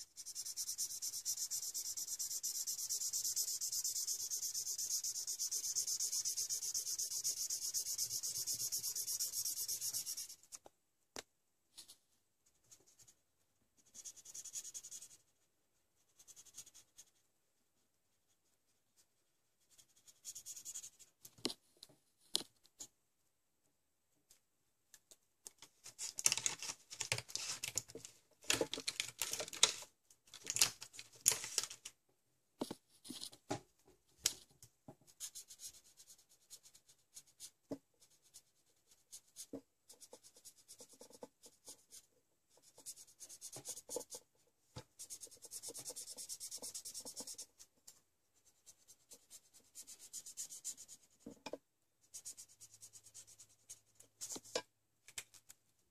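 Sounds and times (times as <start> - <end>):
marker scratching on paper: 0.0 - 10.5, 13.8 - 15.3, 16.0 - 17.2, 19.6 - 21.1, 35.1 - 44.2, 44.9 - 47.7, 48.4 - 51.4, 52.1 - 54.6.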